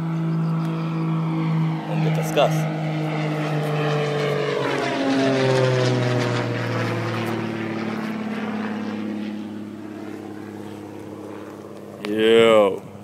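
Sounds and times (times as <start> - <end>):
passing motor humming: 0.0 - 13.0.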